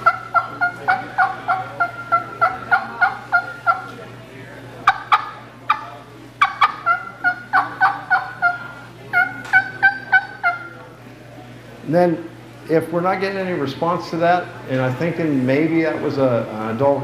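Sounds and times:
turkey mouth call clucks and yelps: 0:00.0 - 0:04.0, 0:04.8 - 0:10.8.

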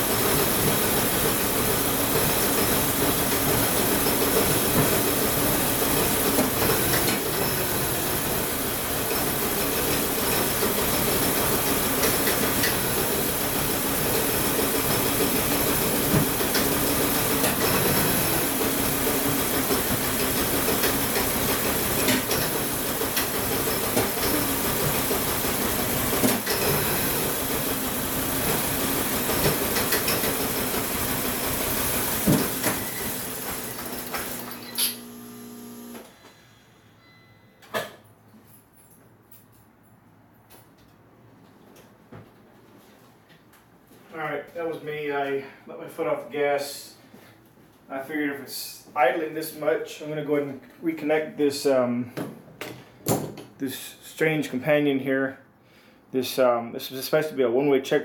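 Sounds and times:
car engine running: 0:00.0 - 0:36.0.

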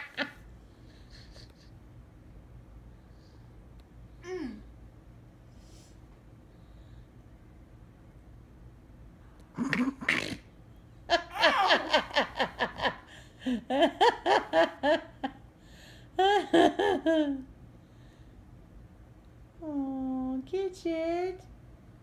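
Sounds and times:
people laughing: 0:11.1 - 0:15.3.

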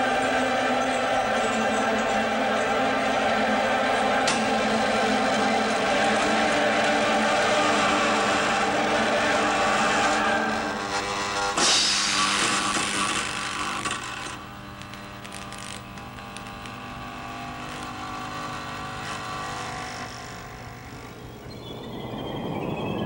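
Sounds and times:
theme music held chord: 0:00.0 - 0:12.0.

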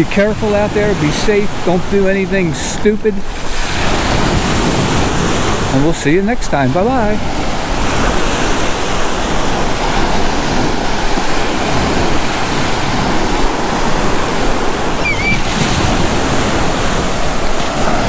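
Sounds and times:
ocean surf washing: 0:00.0 - 0:18.0
wind: 0:00.0 - 0:18.0
brief high chirp: 0:15.0 - 0:15.5.

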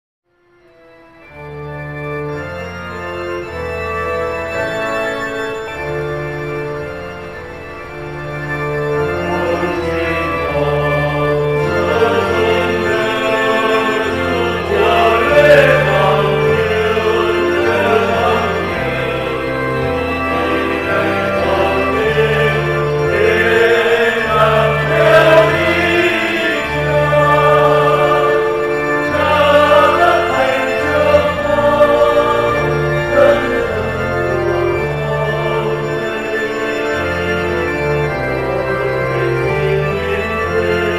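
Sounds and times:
organ chords: 0:00.3 - 0:40.9
voices singing a hymn: 0:08.8 - 0:40.9.

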